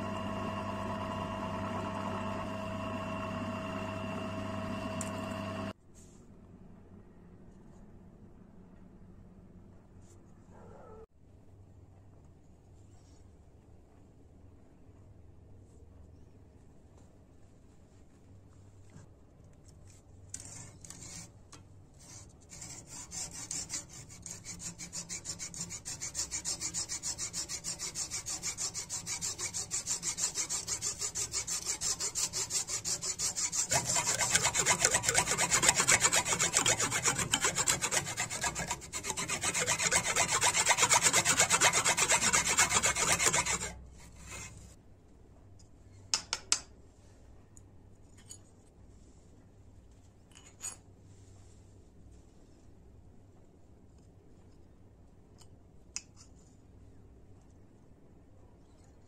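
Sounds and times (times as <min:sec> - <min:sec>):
hand file rasping on horn: 0:22.0 - 0:44.6.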